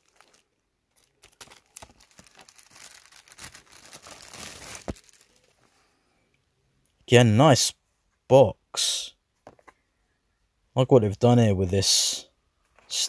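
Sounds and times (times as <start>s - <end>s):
plastic wrapping crinkling and tearing: 0.0s - 5.7s.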